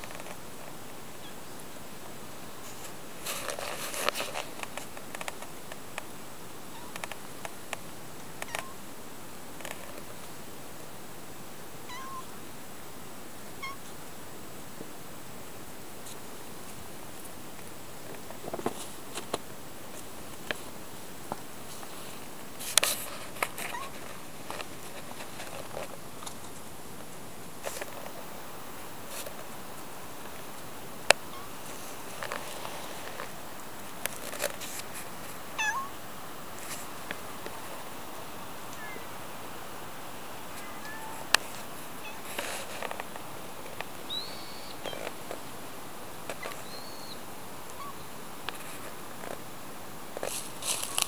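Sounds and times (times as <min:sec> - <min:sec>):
steady hiss: 0:00.0 - 0:51.0
footsteps crunching on snow: 0:50.1 - 0:51.0.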